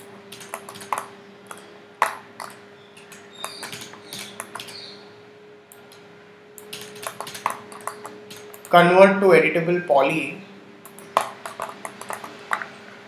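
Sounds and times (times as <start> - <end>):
faint steady hum: 0.0 - 13.0
computer mouse clicking: 0.3 - 4.9, 6.6 - 8.8, 10.8 - 12.7.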